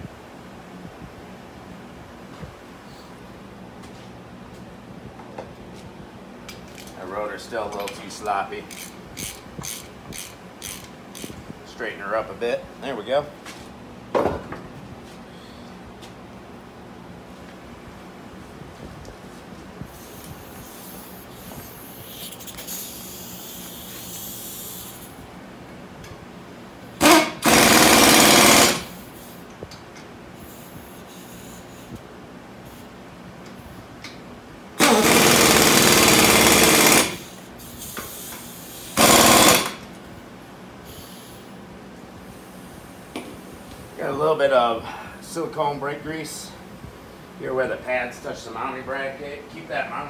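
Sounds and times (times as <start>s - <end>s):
high hissing spray: 19.9s - 25.2s, 40.9s - 41.5s
impact wrench hammering: 27.0s - 29.0s, 34.8s - 37.4s, 38.9s - 39.8s.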